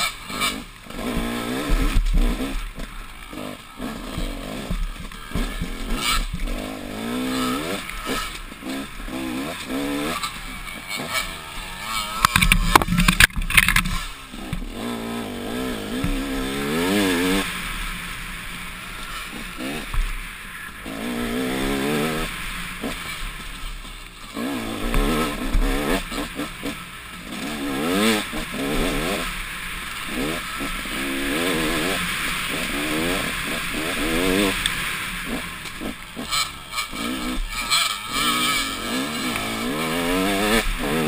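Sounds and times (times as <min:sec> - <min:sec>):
dirt bike engine revving: 0:00.0 - 0:41.0
knocks and clatter: 0:12.1 - 0:14.7.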